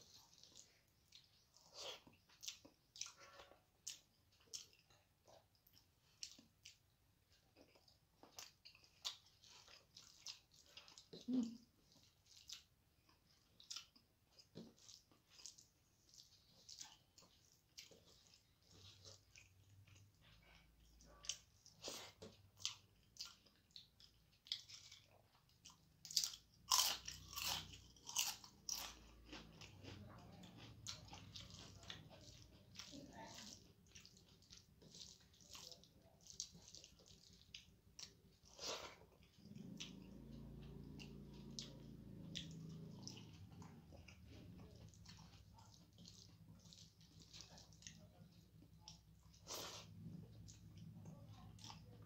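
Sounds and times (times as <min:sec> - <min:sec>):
crunchy bites and chewing: 0:26.0 - 0:31.8.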